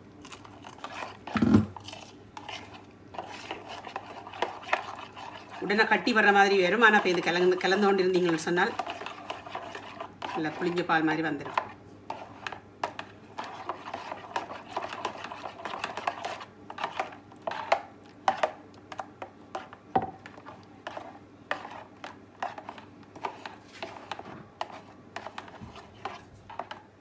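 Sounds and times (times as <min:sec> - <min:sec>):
metal spoon stirring in a bowl: 0:00.2 - 0:26.9.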